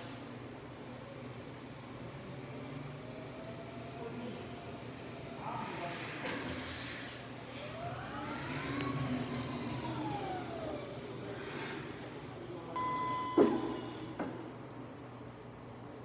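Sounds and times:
short steady beep: 12.8s - 14.1s.

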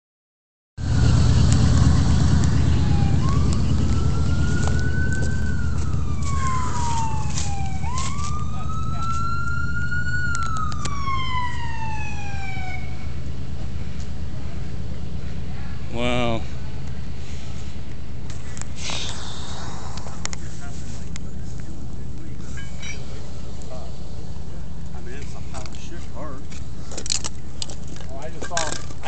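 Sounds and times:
steady low rumble: 0.8s - 9.0s, 12.0s - 28.0s
emergency siren wailing: 0.8s - 15.9s.

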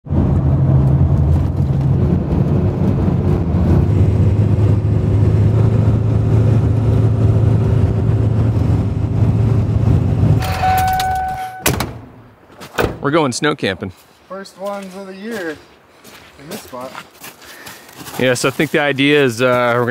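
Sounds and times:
diesel engine running: 0.1s - 11.6s
short electronic chime: 10.4s - 11.8s.

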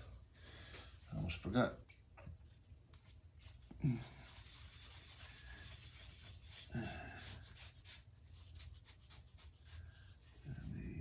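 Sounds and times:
cloth rag scrubbing wood: 3.0s - 10.5s.

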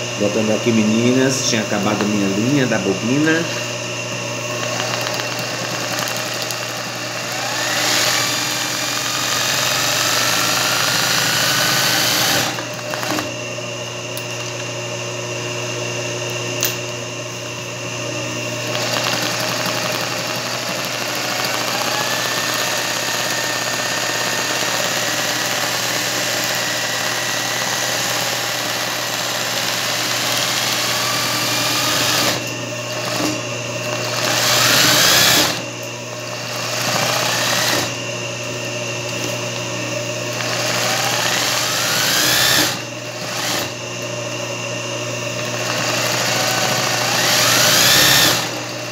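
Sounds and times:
sewing machine stitching: 4.6s - 13.3s, 18.7s - 32.4s, 34.0s - 35.6s, 45.5s - 48.6s.

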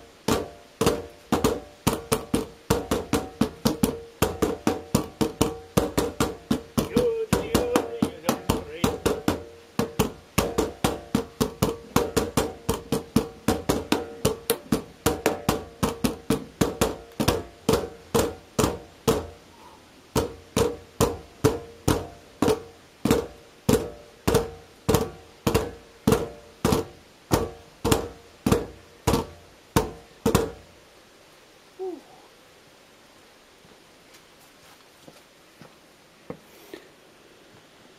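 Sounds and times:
sticks beating plastic bins: 0.2s - 19.4s, 20.2s - 30.7s.

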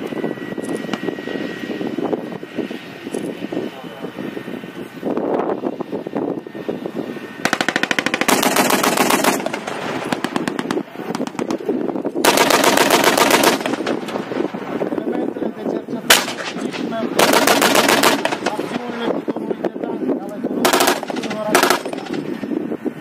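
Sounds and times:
machine-gun fire bursts: 7.4s - 11.6s, 12.2s - 14.1s, 16.1s - 18.6s, 20.6s - 22.2s.

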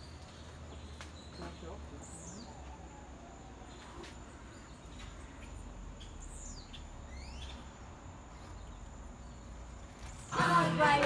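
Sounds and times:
birds whistling calls: 0.0s - 7.7s.

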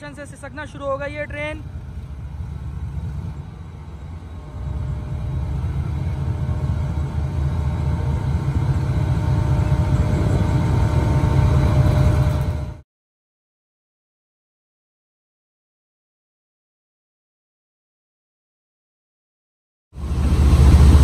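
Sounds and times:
diesel locomotive engine rumbling: 0.0s - 12.8s, 20.0s - 21.0s.

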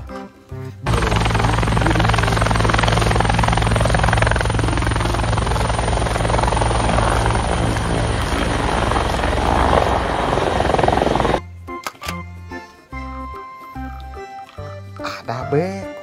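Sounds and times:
helicopter rotor chop: 0.9s - 11.4s.

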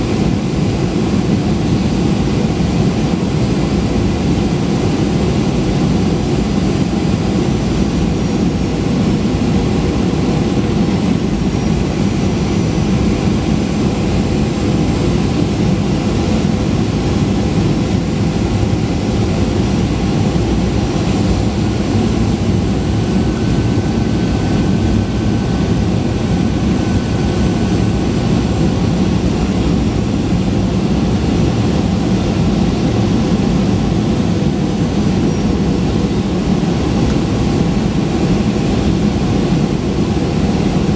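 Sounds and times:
airplane cabin rumble: 0.0s - 40.9s.

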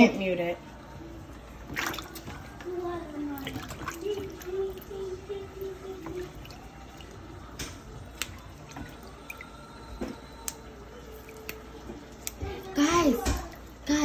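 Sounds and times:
small splashes: 1.6s - 2.6s, 3.2s - 12.5s
tap water running into basin: 1.6s - 14.0s.

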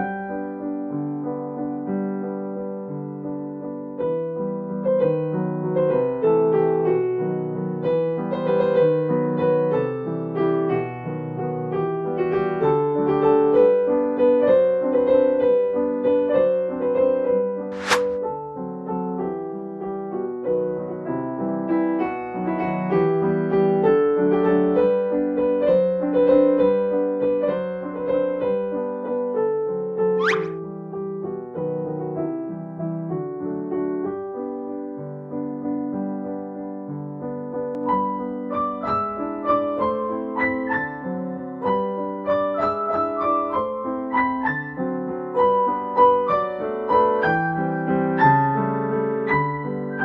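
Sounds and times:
piano music: 0.0s - 50.0s
short sharp sound: 17.7s - 18.2s, 30.2s - 30.6s.

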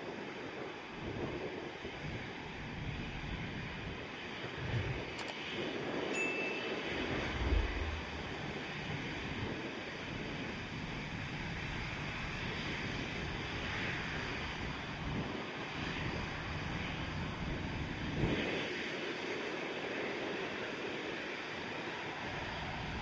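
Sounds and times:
jet engines running while taxiing: 0.0s - 23.0s
brief low thump: 7.2s - 8.5s.

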